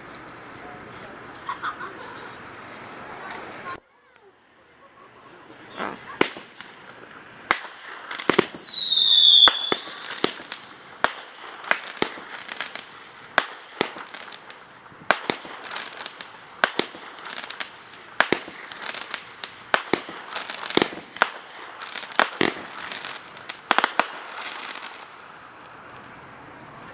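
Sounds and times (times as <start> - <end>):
fireworks crackling: 0.0 - 26.9
fireworks bangs: 5.6 - 26.9
whistling firework: 7.5 - 26.9.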